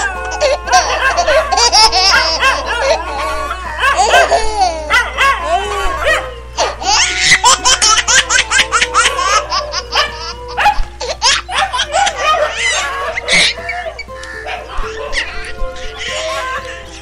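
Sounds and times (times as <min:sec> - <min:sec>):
loud laughter: 0:00.0 - 0:17.0
dog barking: 0:00.7 - 0:06.8, 0:09.0 - 0:15.4.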